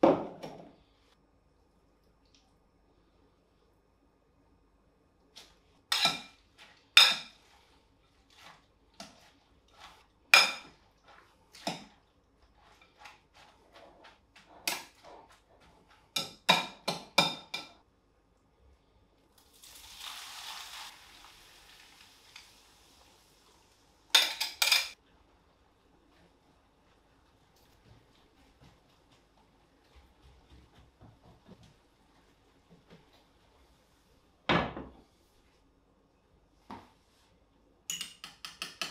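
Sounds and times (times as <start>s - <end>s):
sizzling in frying pan: 19.5s - 23.9s
metal tongs clinking on glass bowl: 37.9s - 38.9s.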